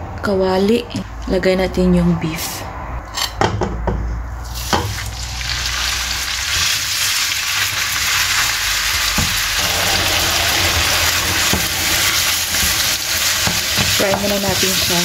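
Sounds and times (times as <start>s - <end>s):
meat sizzling in a frying pan: 4.5s - 15.0s.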